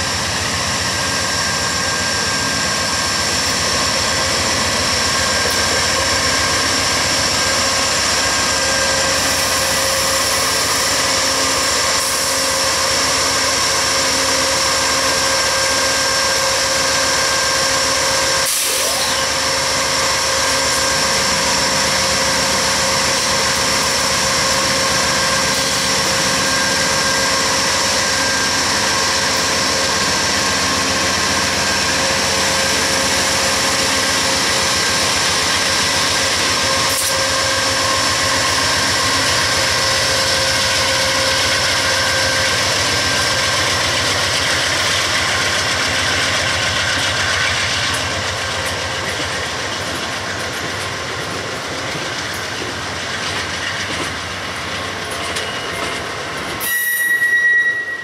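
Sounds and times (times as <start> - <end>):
diesel locomotive engine running: 0.0 - 56.7.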